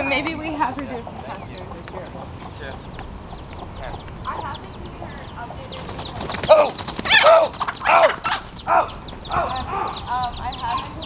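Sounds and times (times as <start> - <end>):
chicks peeping: 0.0 - 11.0
hen squawking loudly: 6.5 - 11.0.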